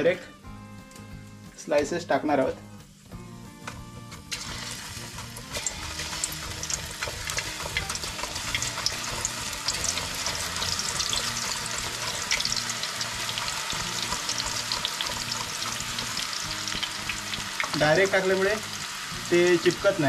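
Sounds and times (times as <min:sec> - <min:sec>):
banana slices deep-frying in oil: 0:04.3 - 0:20.0.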